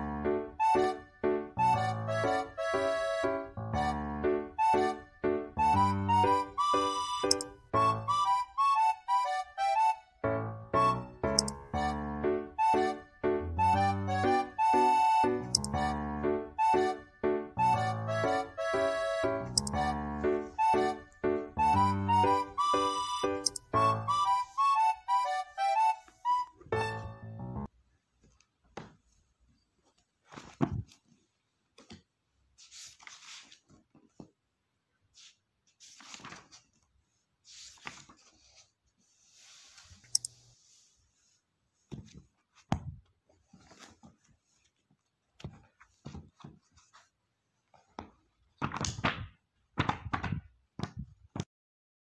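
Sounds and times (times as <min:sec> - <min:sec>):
book pages turning: 0:29.8 - 0:34.3, 0:35.2 - 0:42.7, 0:43.3 - 0:47.1.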